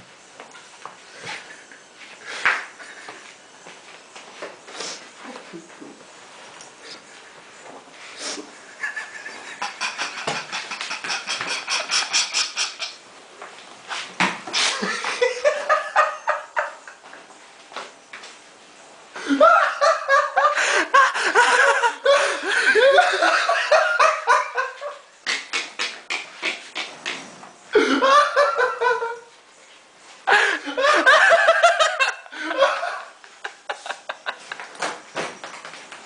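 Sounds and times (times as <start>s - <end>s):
stifled laughter: 8.4s - 13.0s, 14.6s - 17.1s, 19.2s - 26.9s, 27.7s - 29.3s, 30.3s - 34.8s
loud laughter: 8.6s - 13.0s, 19.2s - 26.8s, 27.7s - 29.3s, 30.3s - 34.6s.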